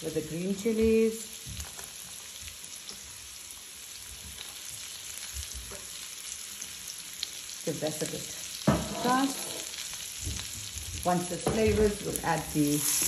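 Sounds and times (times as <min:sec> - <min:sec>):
food sizzling in hot oil: 0:00.0 - 0:13.0
spatula scraping and tapping wok: 0:08.7 - 0:09.8.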